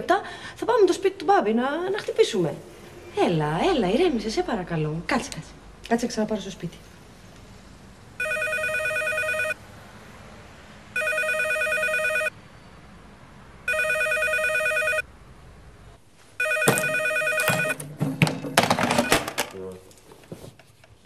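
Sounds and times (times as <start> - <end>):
telephone warbling ring: 8.2 - 9.6, 11.0 - 12.3, 13.7 - 15.0, 16.4 - 17.8
sharp knocks: 16.6 - 19.4.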